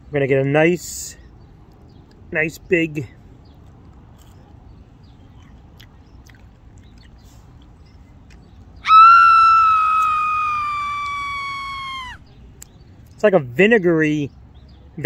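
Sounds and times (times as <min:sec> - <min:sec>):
man's high falsetto squeal: 0:08.8 - 0:12.2.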